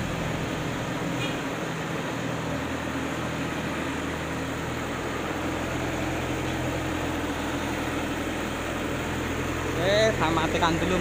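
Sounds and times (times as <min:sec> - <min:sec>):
brick extrusion machine humming: 0:00.0 - 0:11.0.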